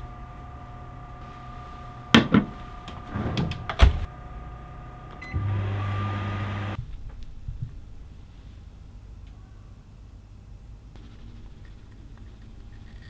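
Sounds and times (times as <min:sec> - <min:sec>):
microwave oven humming: 0:00.0 - 0:06.8
microwave door shutting: 0:02.1 - 0:04.1
microwave beep: 0:05.0 - 0:06.8.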